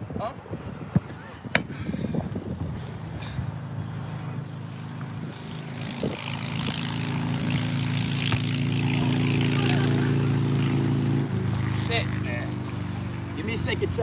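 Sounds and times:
engine drone: 0:01.7 - 0:14.0
football being kicked: 0:08.2 - 0:08.6.

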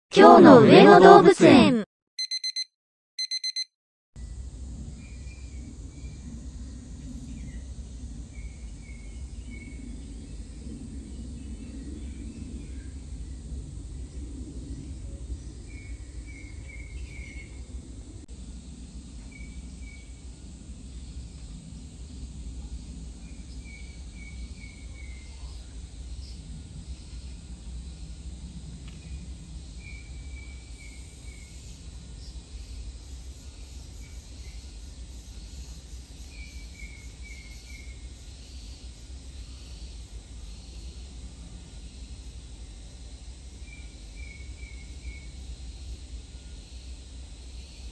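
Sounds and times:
low outdoor rumble: 0:04.2 - 0:30.6.

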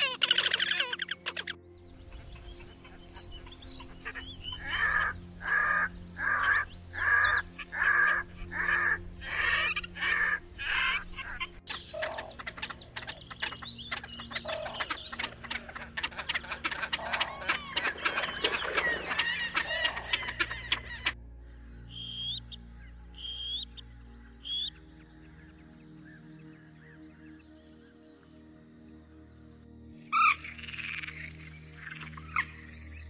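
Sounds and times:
grebe chattering calls: 0:04.1 - 0:21.2
grebe harsh calls: 0:14.4 - 0:21.2.

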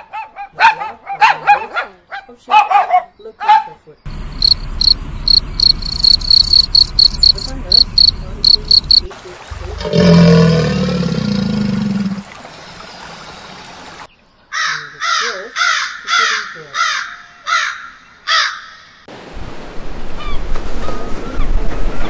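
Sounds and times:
cricket chirping: 0:04.1 - 0:09.1
crocodile growling: 0:09.5 - 0:12.2.

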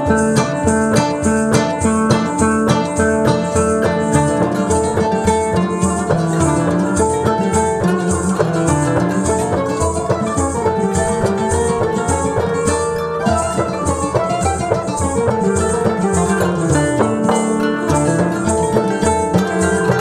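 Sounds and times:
instrumental music with plucked strings: 0:00.0 - 0:20.0.

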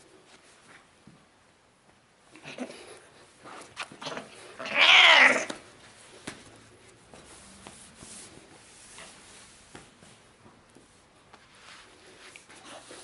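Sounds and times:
cat yowling angrily: 0:04.6 - 0:05.5.

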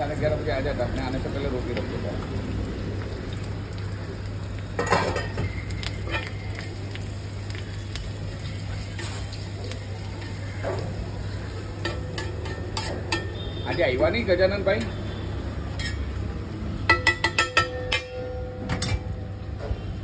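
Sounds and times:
egg sizzling on a griddle: 0:00.0 - 0:19.4
metal spatula scraping and tapping: 0:11.8 - 0:13.9, 0:15.7 - 0:16.1, 0:16.9 - 0:19.0.

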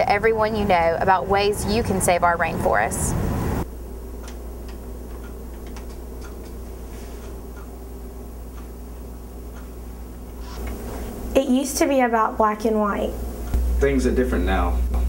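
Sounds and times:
steady low hum: 0:00.0 - 0:15.0
faint ticks: 0:08.5 - 0:08.7, 0:09.5 - 0:09.8.

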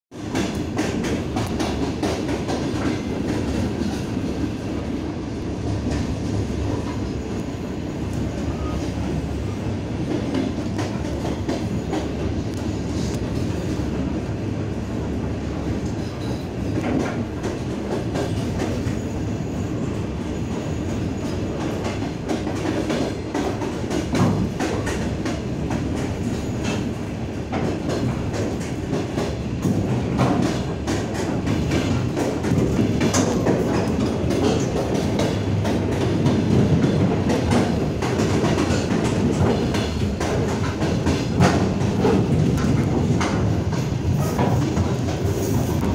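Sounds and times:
train wheels rumbling on track: 0:00.1 - 0:45.9
wheels clicking over rail joints: 0:27.5 - 0:45.9.

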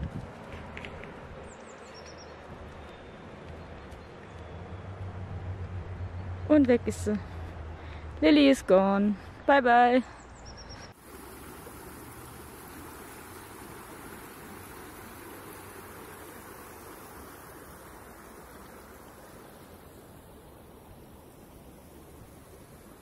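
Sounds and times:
stream running over stones: 0:10.9 - 0:23.0.

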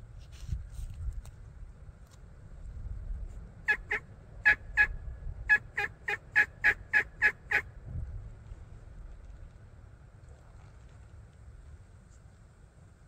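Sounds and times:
wild turkey yelps: 0:03.7 - 0:04.9, 0:05.5 - 0:07.6.

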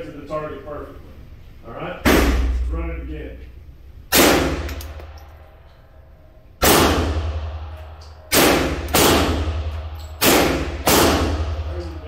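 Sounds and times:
handgun shots echoing: 0:04.1 - 0:05.3, 0:06.6 - 0:11.6.

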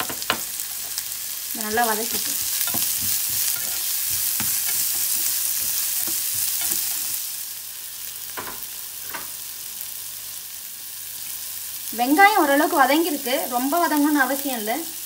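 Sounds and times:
vegetables sizzling in hot oil: 0:00.0 - 0:15.0
spatula scraping a pan: 0:00.6 - 0:07.3.

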